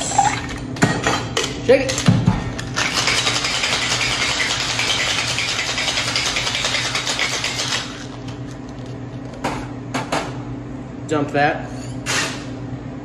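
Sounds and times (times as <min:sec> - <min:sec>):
ice rattling in cocktail shaker: 0:02.8 - 0:08.1.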